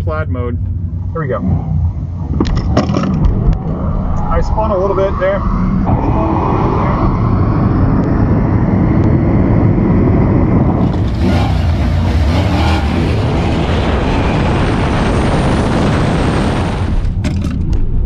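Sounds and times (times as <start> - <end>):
road and wind noise: 0.0 - 18.0
car launching at full throttle: 10.3 - 17.3.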